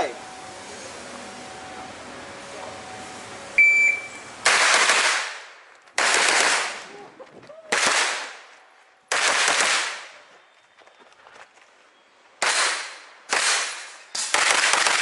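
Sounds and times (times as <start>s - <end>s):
shot timer beep: 3.6s - 4.2s
rapid gunshot bursts: 4.4s - 6.9s, 7.7s - 8.4s, 9.1s - 10.1s, 12.4s - 15.0s.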